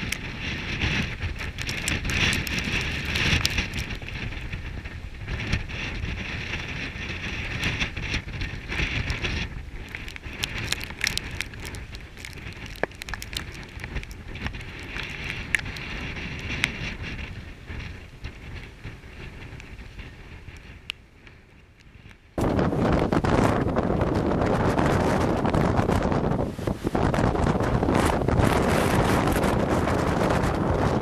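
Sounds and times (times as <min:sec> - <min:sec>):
sharp ticks and crackles: 0:00.0 - 0:04.6, 0:05.3 - 0:19.8
gusty wind: 0:00.0 - 0:31.0.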